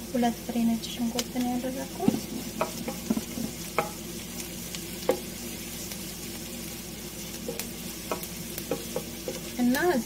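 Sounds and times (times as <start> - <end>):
onion sizzling in hot oil: 0.0 - 10.0
spatula knocking against pan: 2.0 - 4.0, 5.0 - 5.3, 7.4 - 9.5.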